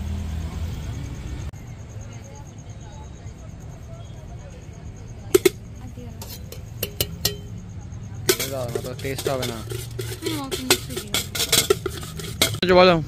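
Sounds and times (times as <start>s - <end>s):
spoon clinking on steel bowls: 5.3s - 7.6s, 8.2s - 12.6s
steel tin shaken: 5.4s - 7.5s, 8.2s - 12.6s.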